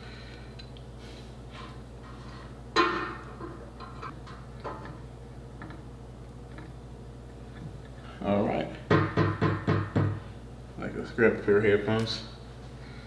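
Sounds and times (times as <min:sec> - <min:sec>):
clamp knocking on desk: 0:08.9 - 0:10.2.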